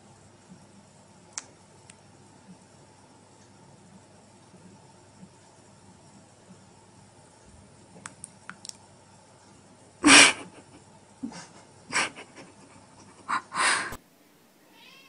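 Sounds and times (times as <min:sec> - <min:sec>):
rough meow-like animal calls: 0:14.7 - 0:15.0.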